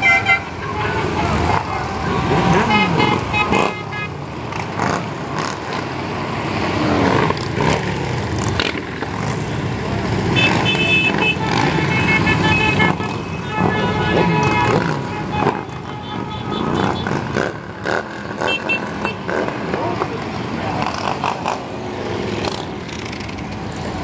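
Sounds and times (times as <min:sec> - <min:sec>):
motorcycle horns tooting: 0:00.0 - 0:05.0, 0:10.2 - 0:19.6
motorcycles passing and revving: 0:00.0 - 0:24.0.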